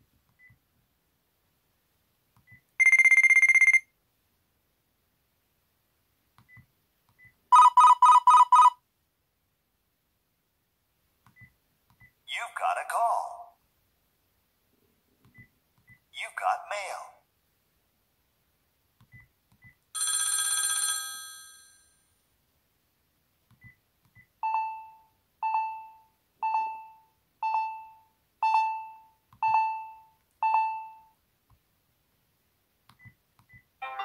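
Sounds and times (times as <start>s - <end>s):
short alarm beeps: 2.8s - 3.8s
bell telephone ringtone: 2.8s - 3.9s, 7.5s - 8.8s, 20.0s - 22.0s.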